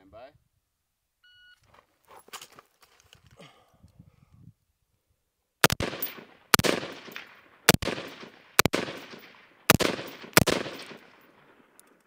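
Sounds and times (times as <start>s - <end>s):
rifle shots with echo: 5.6s - 11.8s.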